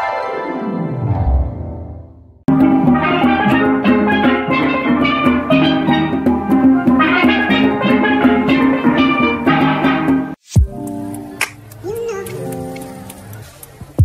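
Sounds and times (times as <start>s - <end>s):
steel pans playing: 2.5s - 13.6s
hand drum beat: 10.6s - 14.0s.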